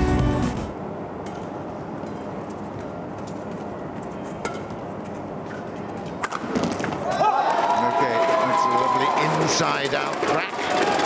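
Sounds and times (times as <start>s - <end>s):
racket striking shuttlecock: 1.2s - 3.0s, 4.4s - 4.8s, 5.5s - 7.3s
arena crowd noise: 5.8s - 11.0s.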